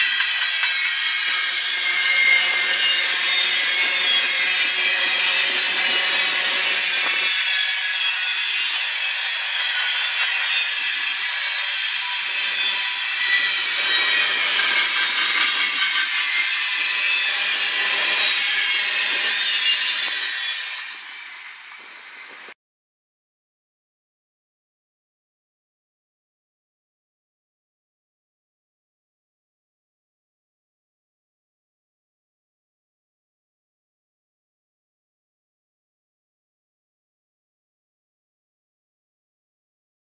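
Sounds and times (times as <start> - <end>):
train wheels grinding on rails: 0.0 - 22.5.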